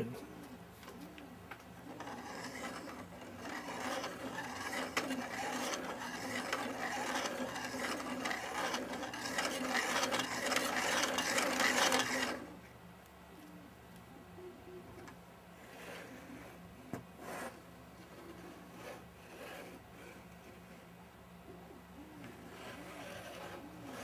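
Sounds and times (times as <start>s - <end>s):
plastic mechanism clicking and scraping: 1.9s - 12.5s.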